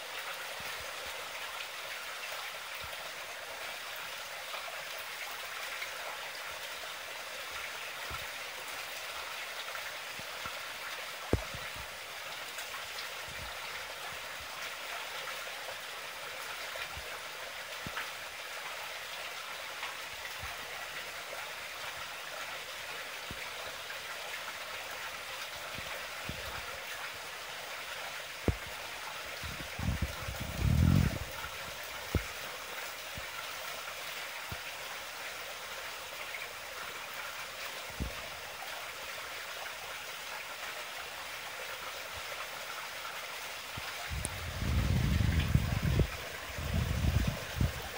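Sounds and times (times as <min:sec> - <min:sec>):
water splashing into pond: 0:07.5 - 0:15.8, 0:37.4 - 0:47.9.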